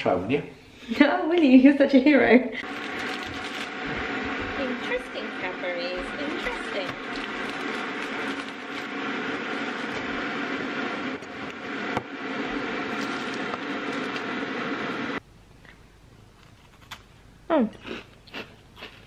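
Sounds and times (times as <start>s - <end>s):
kitchen appliance humming: 2.6s - 15.2s.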